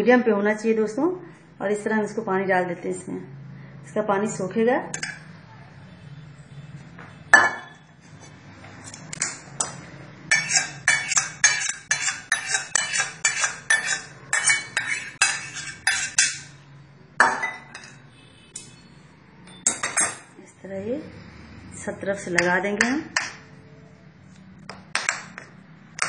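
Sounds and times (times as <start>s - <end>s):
metal pan clinking: 5.0s - 5.2s, 10.3s - 16.6s, 17.2s - 18.0s, 19.5s - 20.3s.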